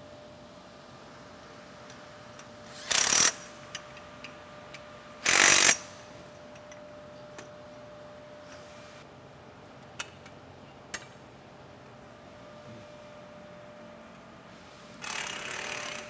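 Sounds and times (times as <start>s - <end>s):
cordless drill bursts: 2.7s - 3.4s, 5.2s - 5.8s, 15.0s - 16.0s.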